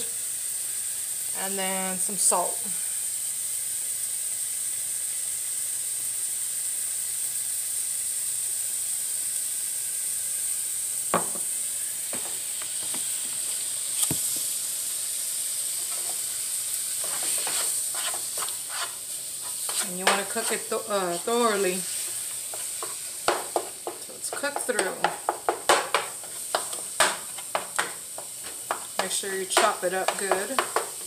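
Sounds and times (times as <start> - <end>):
meat and onion sizzling in a pan: 0.0 - 31.0
utensil knocking on a pan: 11.2 - 11.5, 19.7 - 20.6, 22.5 - 31.0
utensil scraping a pan: 17.0 - 31.0.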